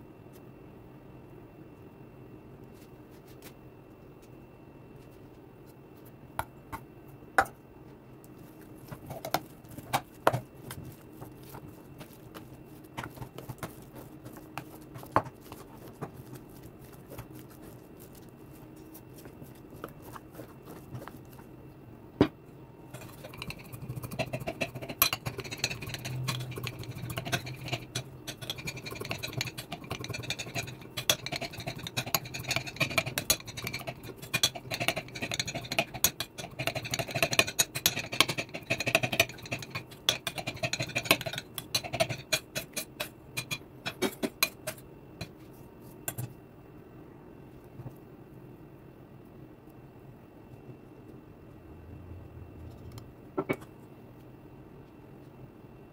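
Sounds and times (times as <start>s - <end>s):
potatoes mashed in metal bowl: 8.8s - 21.4s, 23.0s - 45.4s.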